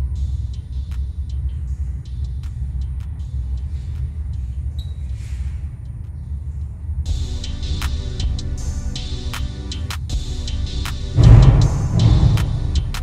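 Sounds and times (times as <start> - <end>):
steady low rumble: 11.1 - 13.0.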